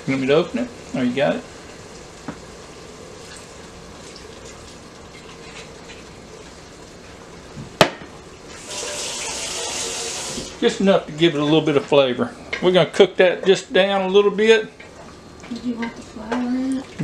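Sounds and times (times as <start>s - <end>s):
meat sizzling in oil: 0.0s - 15.4s
wine poured into hot pan: 8.4s - 10.6s.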